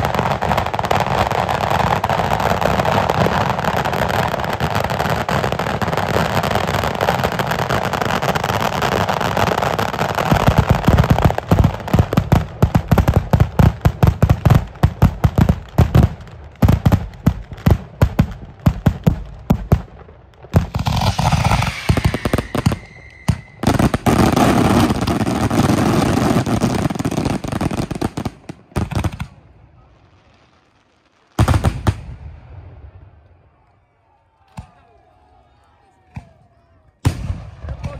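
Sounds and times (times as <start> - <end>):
firecrackers crackling: 0.0 - 32.4
loud firework bangs: 20.5 - 29.4, 31.4 - 32.9, 37.0 - 37.9.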